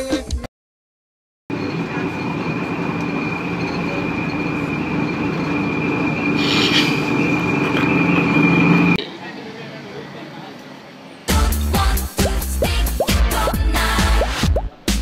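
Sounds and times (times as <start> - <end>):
high steady whine: 1.5 - 9.0
bus engine and road drone: 1.5 - 14.9.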